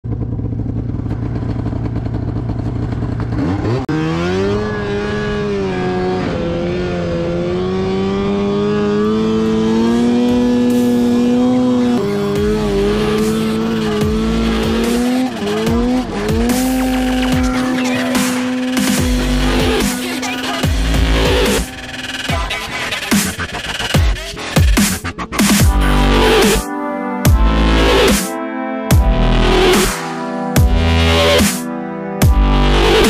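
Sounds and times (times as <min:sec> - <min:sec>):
snowmobile engine revving: 0:00.5 - 0:26.6.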